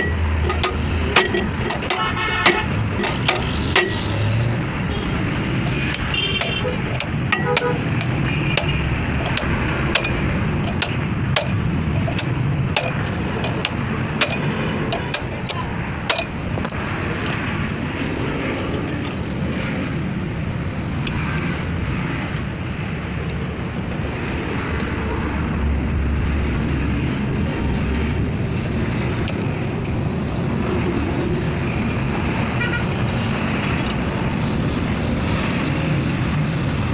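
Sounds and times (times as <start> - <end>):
hammer striking metal pipe: 0.0 - 4.2, 5.7 - 16.8
steady low rumble: 0.0 - 32.3.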